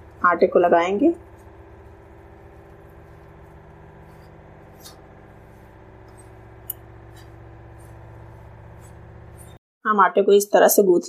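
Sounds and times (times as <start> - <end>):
steady low hum: 0.0 - 9.6
hand scratching flour in bowl: 1.1 - 9.6.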